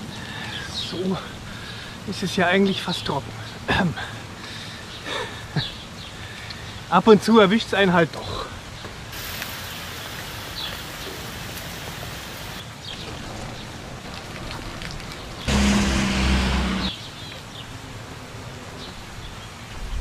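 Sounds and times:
steady rain: 0.0s - 20.0s.

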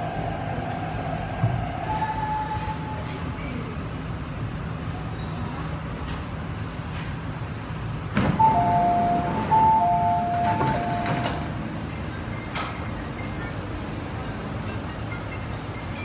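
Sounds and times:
train steady hum: 0.0s - 16.0s
train doors knocking shut: 8.1s - 11.6s
alternating high and low beeps: 8.4s - 11.3s.

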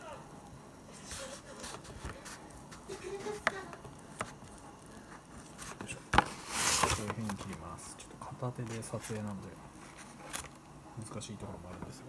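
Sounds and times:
plastic packaging crinkling: 1.0s - 10.6s.

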